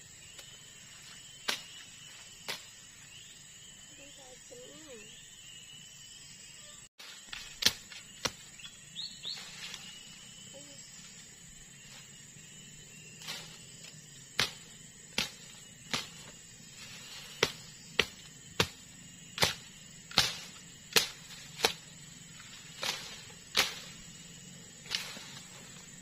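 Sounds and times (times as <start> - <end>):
machete chopping undergrowth: 1.4 - 1.8, 2.4 - 2.8, 7.0 - 10.0, 13.2 - 26.0.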